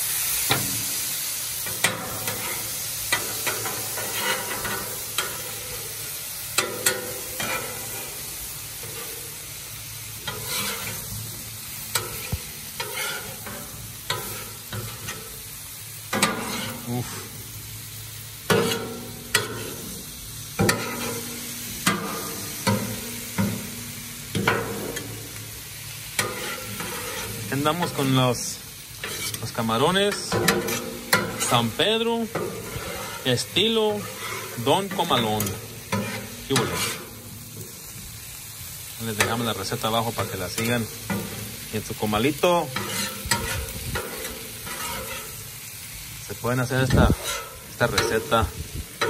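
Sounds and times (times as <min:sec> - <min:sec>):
vegetables sizzling on a griddle: 0:00.0 - 0:49.0
metal spatulas scraping and clinking: 0:01.6 - 0:05.9, 0:06.6 - 0:09.4, 0:10.2 - 0:11.2, 0:11.9 - 0:15.3, 0:16.1 - 0:17.4, 0:18.5 - 0:19.9, 0:20.6 - 0:23.6, 0:26.2 - 0:28.1, 0:29.0 - 0:37.1, 0:42.7 - 0:45.5, 0:46.8 - 0:48.3.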